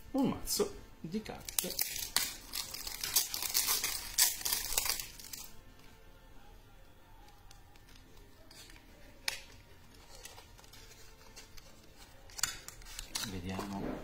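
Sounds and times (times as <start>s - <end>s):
plastic wrap crinkling: 1.3s - 5.6s.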